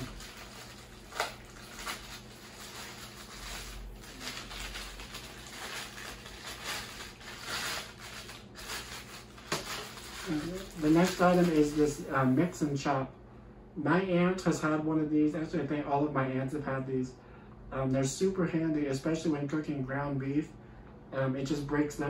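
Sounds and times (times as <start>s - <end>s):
plastic packaging crinkling: 0.0s - 12.3s.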